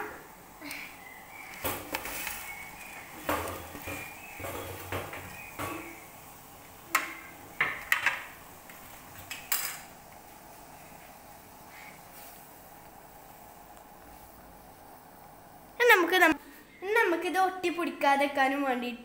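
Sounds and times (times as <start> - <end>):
pot and utensil clattering: 3.1 - 6.0, 9.2 - 9.9.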